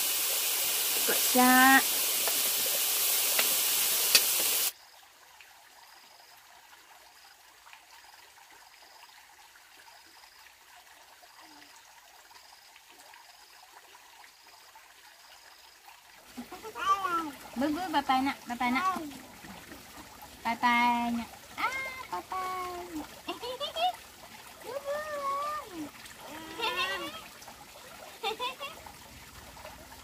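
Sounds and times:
loud steady hiss: 0:00.0 - 0:04.7.

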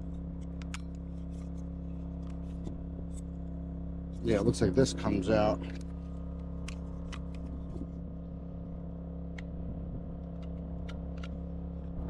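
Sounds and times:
mechanical hum: 0:00.0 - 0:12.0
fuse housing clicks and taps: 0:00.4 - 0:01.0.

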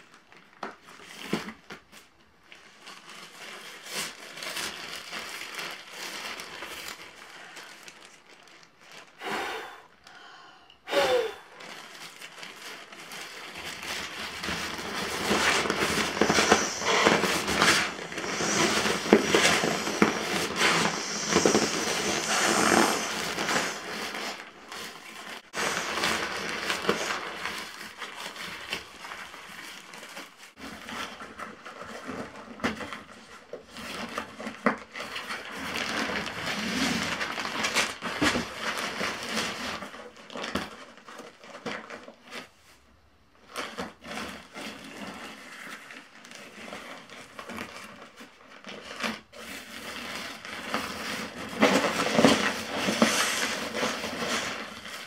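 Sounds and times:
nylon sack rustling and crinkling: 0:02.4 - 0:09.3, 0:11.4 - 0:33.1, 0:43.5 - 0:55.0.

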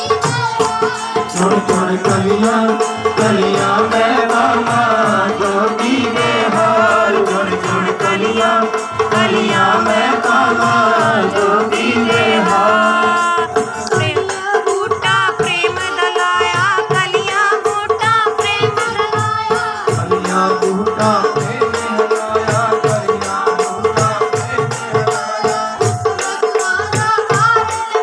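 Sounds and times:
hand drums beating: 0:00.0 - 0:28.0
harmonium melody over drone: 0:00.0 - 0:28.0.

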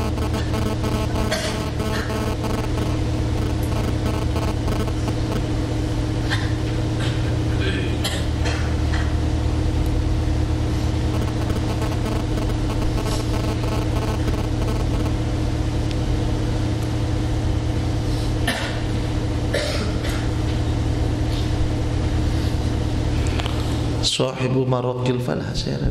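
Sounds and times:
short noises: 0:00.0 - 0:05.5
steady low hum: 0:00.0 - 0:25.9.

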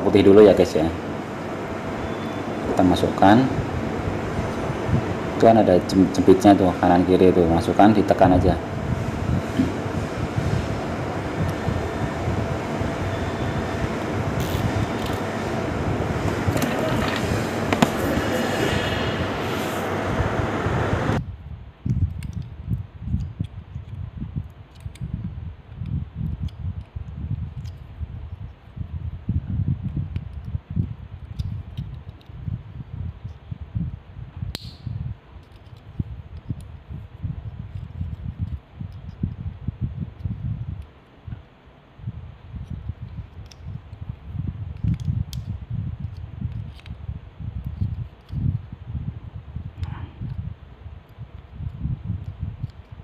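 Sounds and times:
rumbling background noise: 0:00.0 - 0:23.2.

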